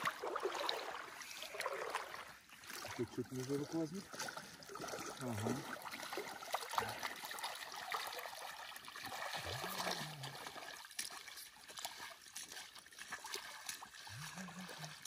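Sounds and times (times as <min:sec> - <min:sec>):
net dripping water: 0:00.0 - 0:15.0
water splashing and trickling: 0:00.0 - 0:15.0
murmured voice: 0:14.1 - 0:15.0.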